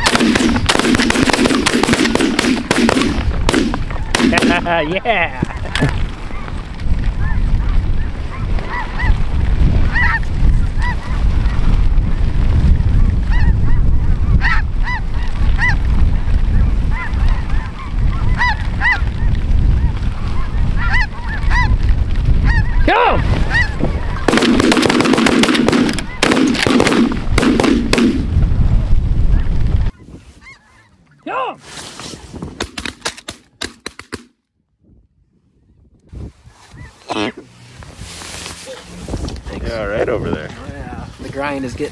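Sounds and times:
wind rumble on microphone: 0:00.0 - 0:33.0, 0:34.6 - 0:41.9
geese honking: 0:08.0 - 0:09.2, 0:09.9 - 0:11.2, 0:16.9 - 0:19.1, 0:19.8 - 0:21.8, 0:22.4 - 0:24.6, 0:25.8 - 0:26.4, 0:29.9 - 0:32.2.

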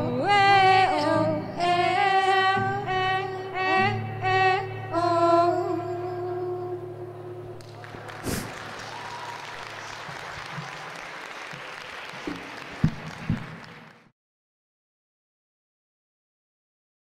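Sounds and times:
audience applauding: 0:07.6 - 0:14.1.

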